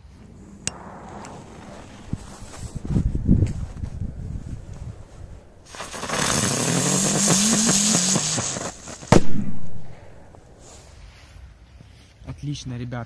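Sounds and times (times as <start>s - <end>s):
firework fountain hissing: 0.2s - 4.2s, 4.9s - 9.3s
sharp bang: 0.6s - 3.8s.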